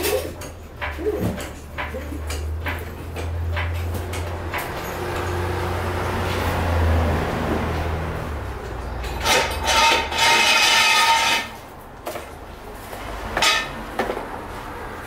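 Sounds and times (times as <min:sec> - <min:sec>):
metal clanks: 0:00.0 - 0:06.5, 0:08.6 - 0:12.4, 0:13.3 - 0:14.2
metal jack stand scraping floor: 0:08.8 - 0:12.3, 0:13.2 - 0:13.8.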